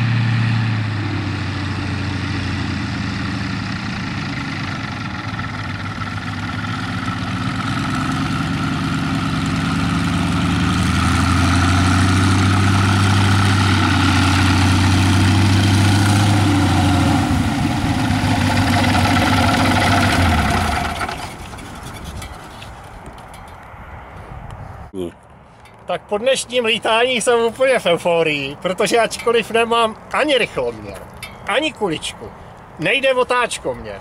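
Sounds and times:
biplane engine and propeller running: 0.0s - 23.4s.

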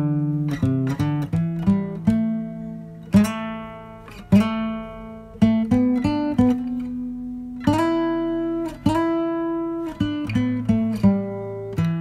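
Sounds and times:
acoustic guitar picking: 0.0s - 12.0s.

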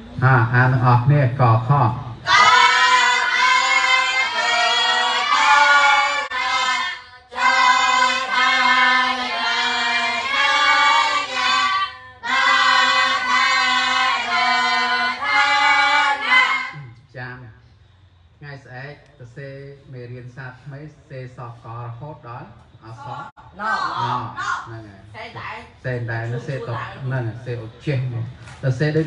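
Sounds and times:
young voices chanting in unison: 2.2s - 17.0s, 22.8s - 24.7s.

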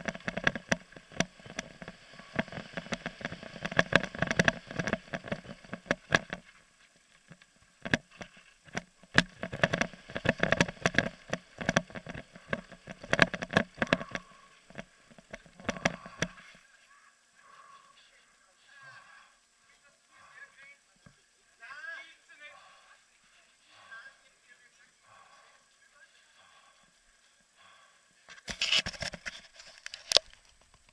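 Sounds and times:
mountain bike rattling on gravel: 0.0s - 6.5s.

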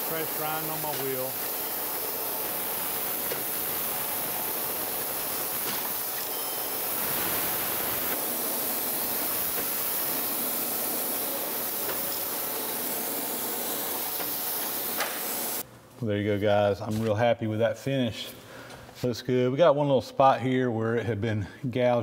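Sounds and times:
coolant mist spray: 0.0s - 15.6s
surface grinder grinding hiss: 0.0s - 15.6s.

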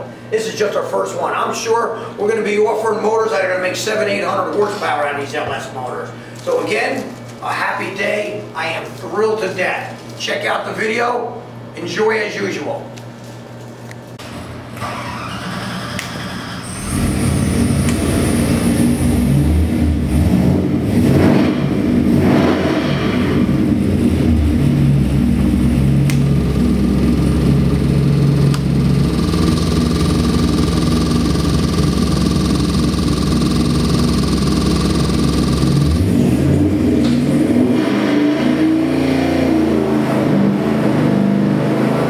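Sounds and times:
engine surging and idling: 14.8s - 42.0s.

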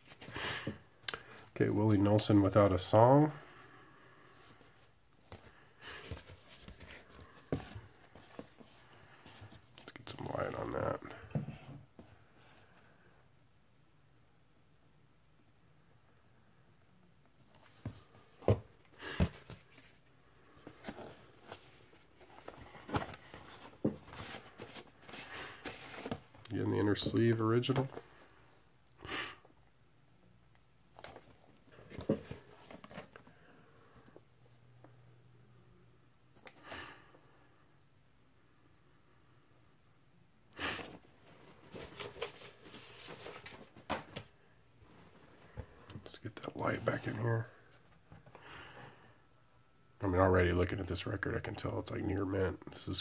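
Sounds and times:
cardboard rustling: 5.3s - 8.7s, 20.6s - 28.3s, 30.9s - 33.3s, 40.8s - 44.3s.

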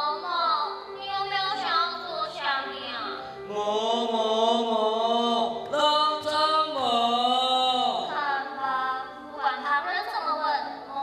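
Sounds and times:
person singing long notes: 3.5s - 8.2s.

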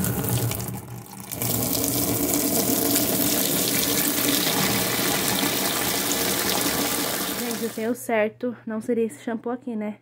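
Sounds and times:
tap water pouring into bucket: 0.0s - 7.8s.

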